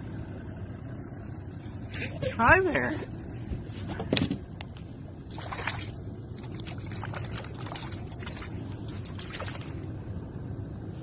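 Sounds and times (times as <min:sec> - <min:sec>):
low steady rumble: 0:00.0 - 0:11.0
water splashing against boat hull: 0:05.2 - 0:09.9.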